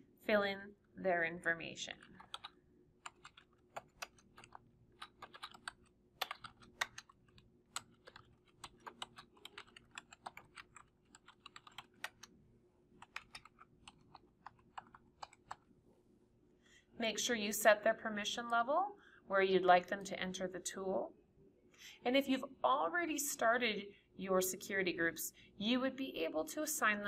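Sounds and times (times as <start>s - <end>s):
typing on computer keyboard: 1.9s - 12.3s, 13.0s - 15.7s.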